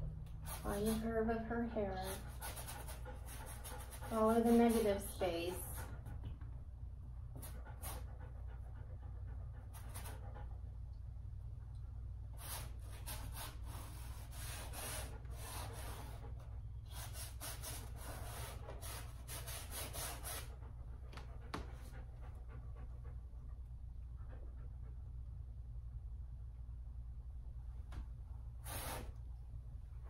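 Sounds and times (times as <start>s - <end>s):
low room hum: 0.0s - 30.0s
paintbrush scrubbing on canvas: 1.8s - 5.9s, 12.4s - 20.6s, 28.6s - 29.1s.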